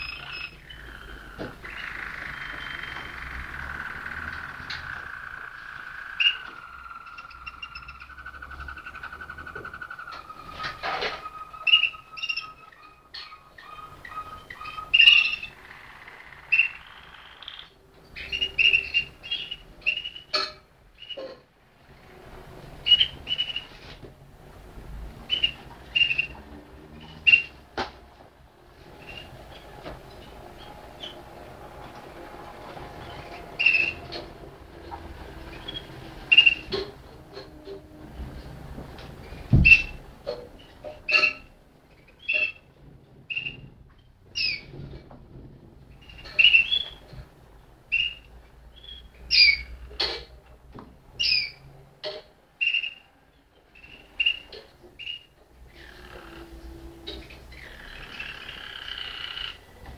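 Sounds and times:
canary singing: 0.0 - 24.0, 25.1 - 38.6, 39.2 - 42.7, 43.3 - 43.7, 44.3 - 44.8, 45.9 - 50.4, 51.1 - 59.9.

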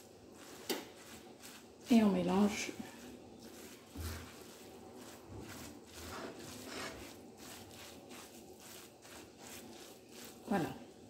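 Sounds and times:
wooden spoon stirring in a pot: 0.0 - 11.0.

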